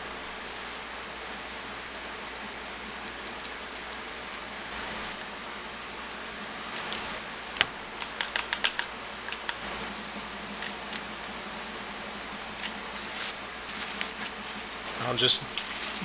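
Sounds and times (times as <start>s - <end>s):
steady hiss: 0.0s - 16.0s
handling clicks: 7.6s - 9.6s.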